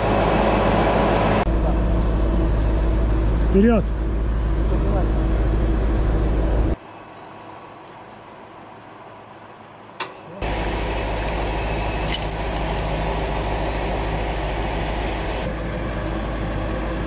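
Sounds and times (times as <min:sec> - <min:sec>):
heavy truck engine running: 0:00.0 - 0:06.8, 0:10.4 - 0:17.0.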